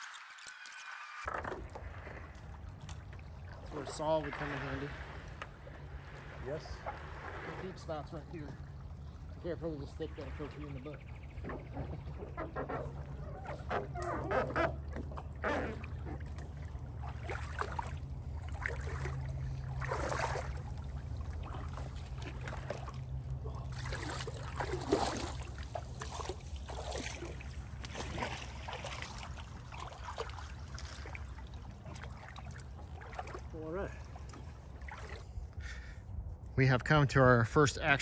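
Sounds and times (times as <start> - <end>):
water splashes: 0.0 - 35.9
boat scraping on branches: 11.4 - 17.5.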